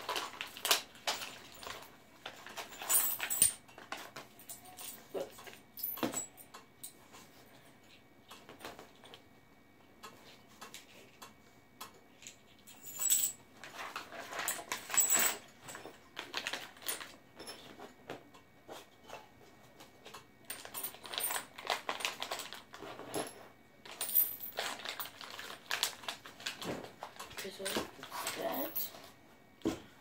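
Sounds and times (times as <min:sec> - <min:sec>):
small metal parts clinking: 0:00.0 - 0:07.0, 0:12.2 - 0:17.7
packaging rustling: 0:24.5 - 0:28.6.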